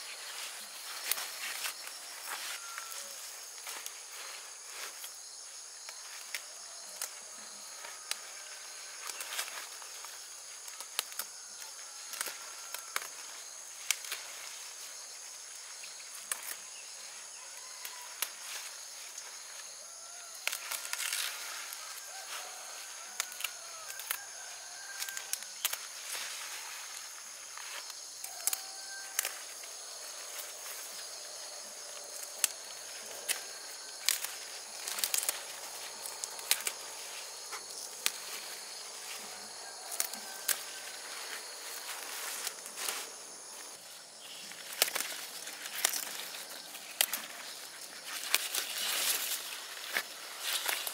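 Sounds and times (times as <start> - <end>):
insect drone: 0.0 - 50.9
plant stems snapping: 25.0 - 25.9, 28.2 - 29.5, 34.0 - 36.8, 44.6 - 47.3.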